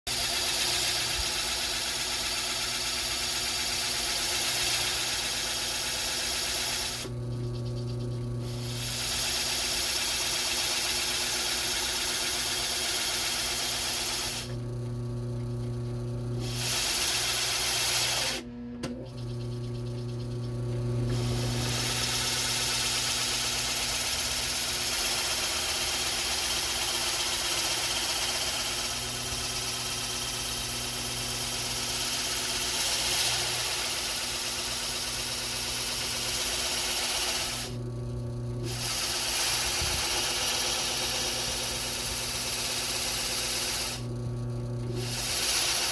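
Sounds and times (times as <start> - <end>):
drill bit grinding into block: 0.1 - 7.1, 16.4 - 18.4, 21.1 - 37.7, 38.6 - 44.0, 45.0 - 45.9
drill press motor hum: 0.1 - 45.9.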